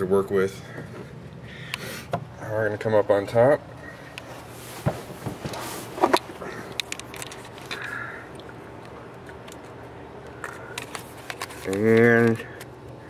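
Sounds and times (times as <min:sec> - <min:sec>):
clicks and rustling on plastic: 0:04.8 - 0:09.7, 0:10.3 - 0:12.7.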